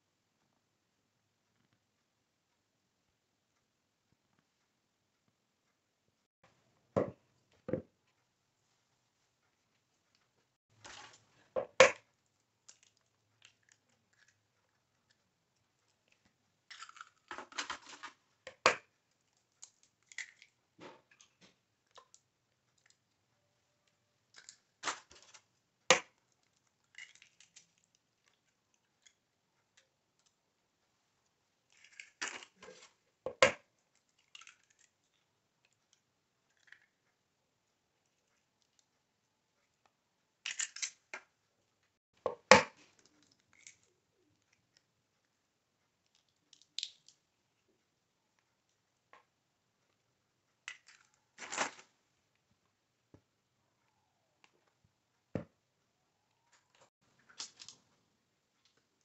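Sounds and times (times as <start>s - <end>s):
eggshells cracking: 46.0s - 47.2s.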